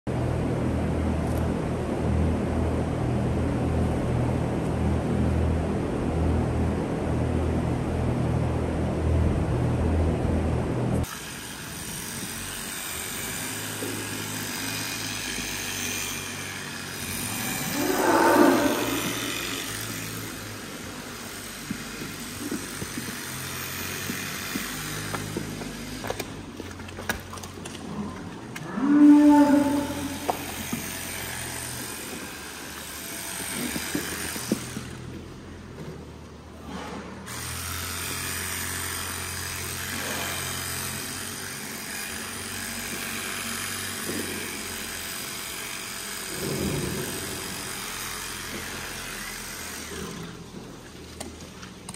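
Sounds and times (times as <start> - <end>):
low mechanical hum: 0.1 - 51.9
cows mooing: 17.2 - 19.9, 27.8 - 30.6.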